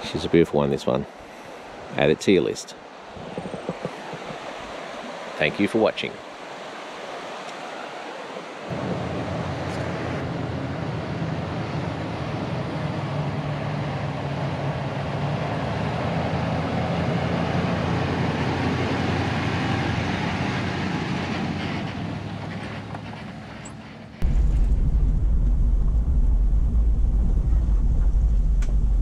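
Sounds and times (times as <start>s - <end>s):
pickup truck engine drone: 8.7s - 21.3s.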